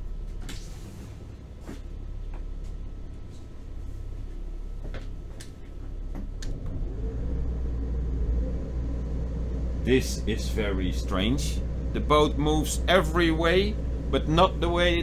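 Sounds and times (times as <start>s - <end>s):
boat engine running at low revs: 5.8s - 15.0s.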